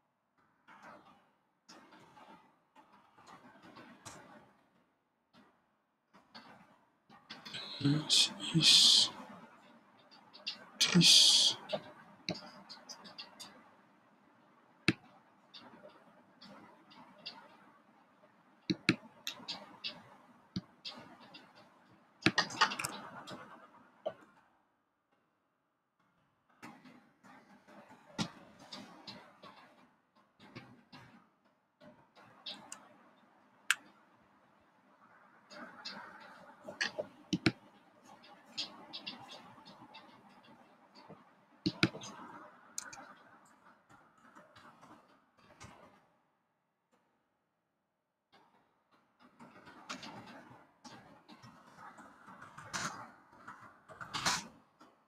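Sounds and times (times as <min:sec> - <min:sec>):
mouse and keyboard clicks: 0:22.3 - 0:23.4, 0:36.7 - 0:37.6, 0:41.7 - 0:42.2
computer mouse clicks: 0:41.7 - 0:43.2.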